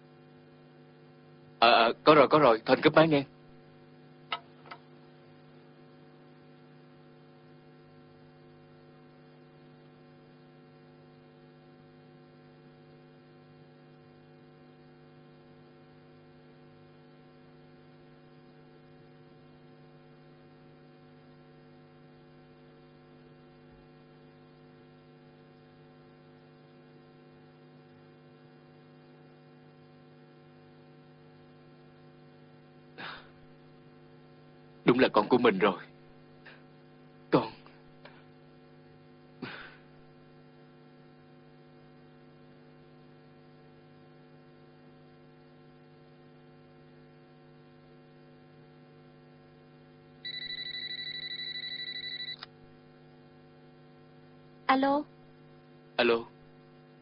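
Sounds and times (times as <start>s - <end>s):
electrical hum: 0.0s - 57.0s.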